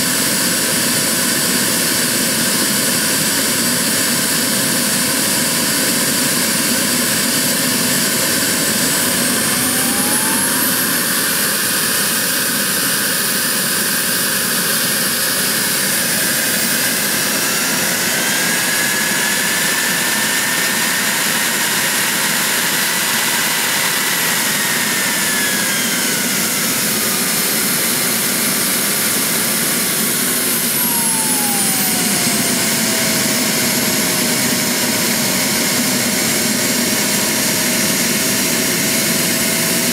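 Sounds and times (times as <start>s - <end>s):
model jet turbine whining: 0.0s - 39.9s.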